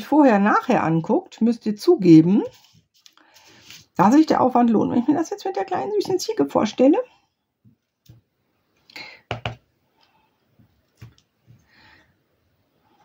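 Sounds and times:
rubber stamp knocking on paper: 9.3 - 9.6.

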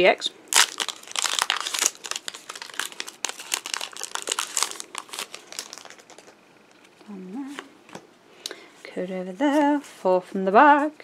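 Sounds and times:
foil wrapper crinkling: 0.5 - 6.4.

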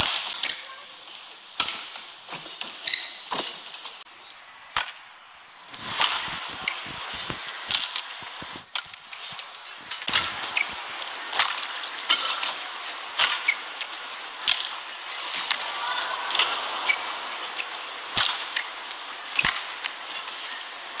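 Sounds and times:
rackets hitting shuttlecock: 1.6 - 3.6, 7.6 - 12.6, 13.2 - 14.8, 17.7 - 20.4
arena crowd noise: 4.0 - 21.0.

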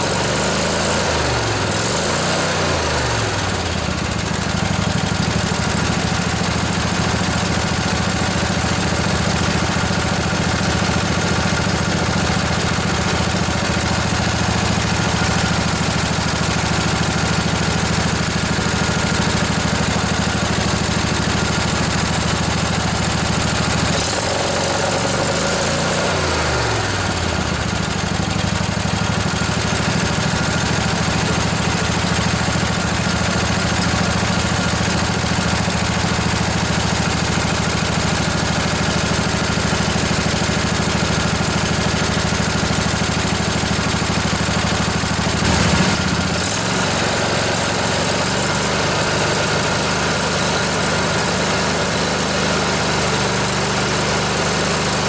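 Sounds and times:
mower engine idling: 0.0 - 55.0.

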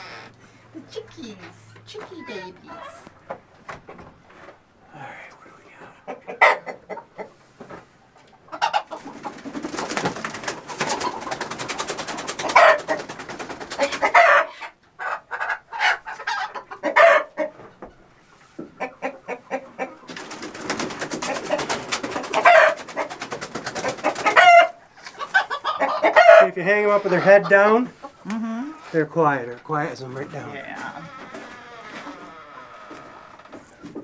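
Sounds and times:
chickens squawking and clucking: 0.0 - 3.6, 5.7 - 34.0
chickens shrieking: 1.4 - 3.2, 8.5 - 17.7, 18.8 - 29.1, 30.0 - 34.0
wings flapping: 9.0 - 14.1, 20.1 - 24.4.

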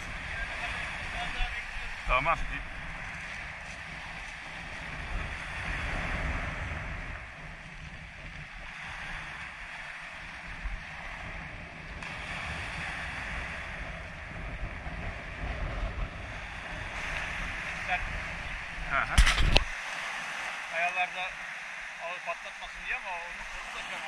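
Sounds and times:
wind buffeting microphone: 0.0 - 20.7
waves breaking on pebble beach: 0.0 - 24.0.

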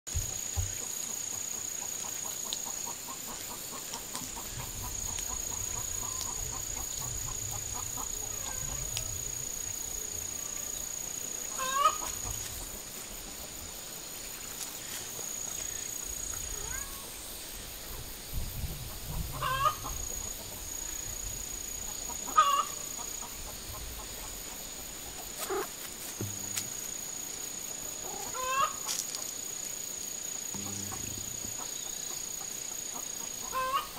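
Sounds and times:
wind rumble on microphone: 4.5 - 10.2, 17.6 - 21.9
chickens clucking: 11.5 - 12.5, 19.1 - 20.0, 22.0 - 24.3, 25.3 - 26.6, 28.0 - 29.2, 30.6 - 33.9
high-pitched whine: 30.5 - 31.8.

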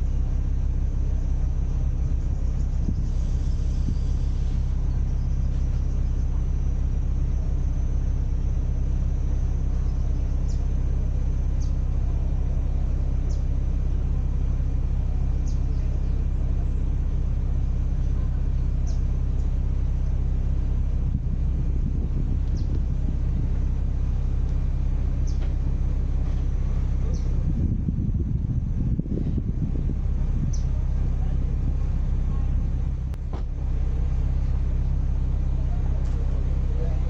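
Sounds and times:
low engine rumble: 0.0 - 37.0.

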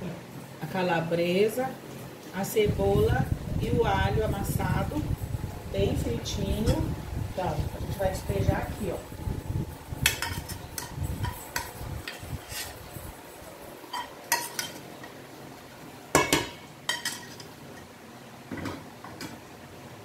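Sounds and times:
wooden spoon scraping a pot: 10.0 - 13.0
pot and spoon clinking on bowl: 13.9 - 14.8, 16.2 - 17.5.

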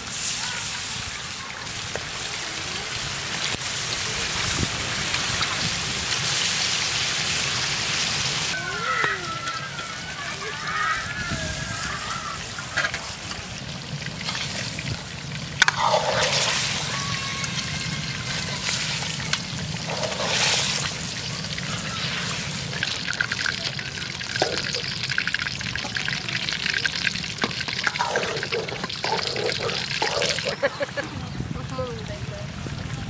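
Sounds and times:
water pouring into pot: 12.9 - 30.8
water splashing: 15.5 - 31.0.

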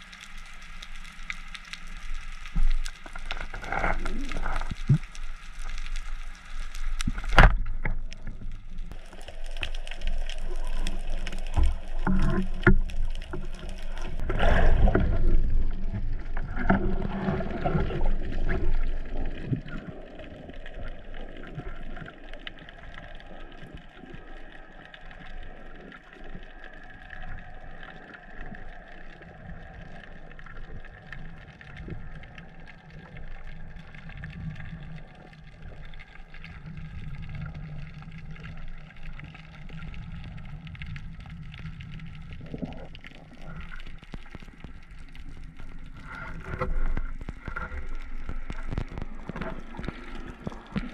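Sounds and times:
water sloshing and rushing: 0.0 - 50.9
underwater hiss: 13.2 - 16.0.

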